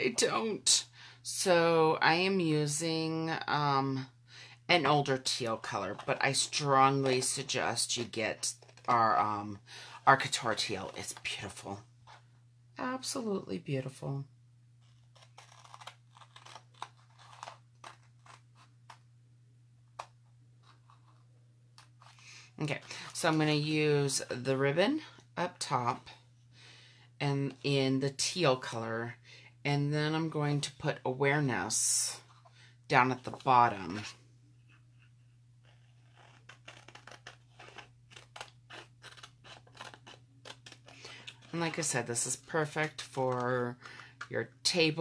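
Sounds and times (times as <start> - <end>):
faint low hum: 0.0 - 45.0.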